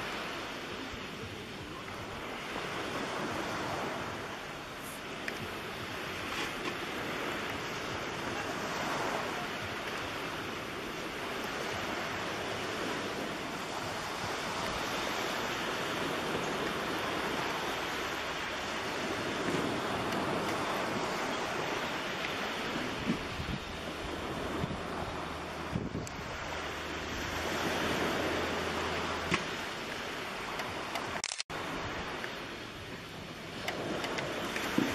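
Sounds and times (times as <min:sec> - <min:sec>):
surf rushing: 0:00.0 - 0:34.9
wind buffeting microphone: 0:00.0 - 0:34.9.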